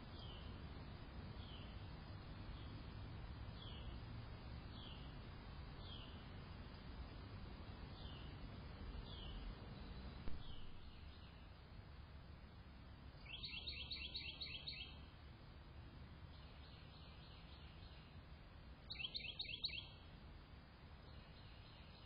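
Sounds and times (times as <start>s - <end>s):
low steady hiss: 0.0s - 22.0s
bird chirping: 0.1s - 0.6s, 1.4s - 1.8s, 3.6s - 4.0s, 4.7s - 5.1s, 5.8s - 6.2s, 7.9s - 11.6s, 13.2s - 15.1s, 16.3s - 18.2s, 18.9s - 20.0s, 21.0s - 22.0s.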